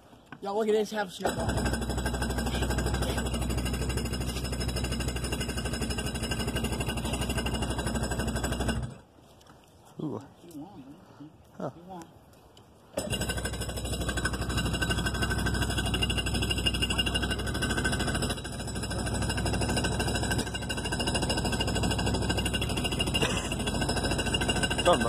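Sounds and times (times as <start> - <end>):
jet ski engine running: 1.3 - 8.9, 13.0 - 25.0.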